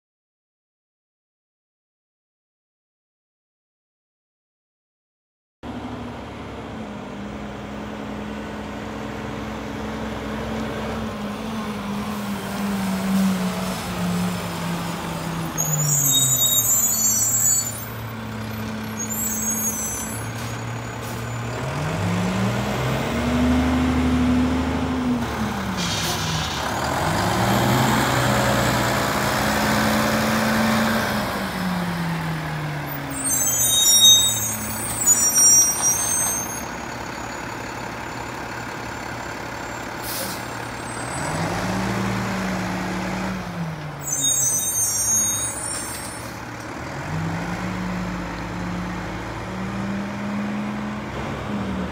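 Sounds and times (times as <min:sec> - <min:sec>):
air brakes hissing: 0:19.0 - 0:21.5, 0:25.7 - 0:26.6, 0:39.8 - 0:40.8, 0:44.0 - 0:46.4
garbage truck diesel engine revving: 0:21.1 - 0:32.9, 0:36.8 - 0:43.8, 0:46.4 - 0:51.9.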